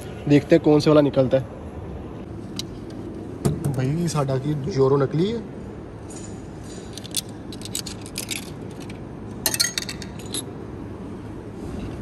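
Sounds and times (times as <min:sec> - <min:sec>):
coins clinking in vending machine: 0:06.9 - 0:10.5.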